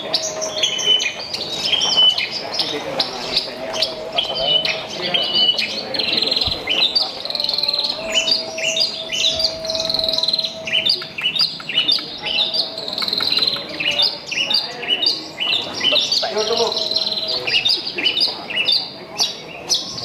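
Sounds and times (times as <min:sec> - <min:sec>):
lark singing chirps and trills: 0:00.0 - 0:20.0.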